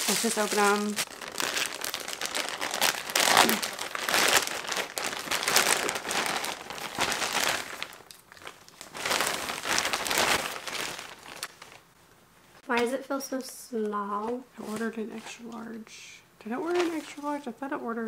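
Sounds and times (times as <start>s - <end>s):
plastic mailer crinkling: 0.0s - 11.8s.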